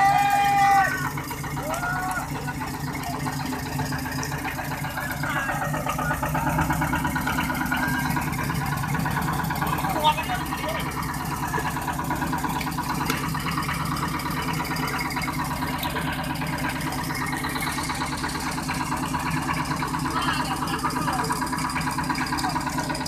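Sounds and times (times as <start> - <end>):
diesel boat engine running: 0.0 - 23.0.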